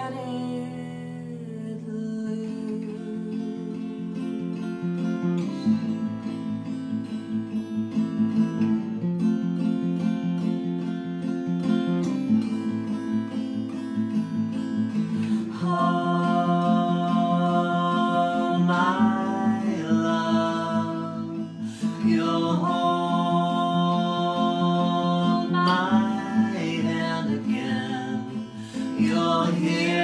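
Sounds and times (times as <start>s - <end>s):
man and woman singing in harmony: 0.0s - 4.0s, 15.1s - 30.0s
acoustic guitar strumming: 0.0s - 30.0s.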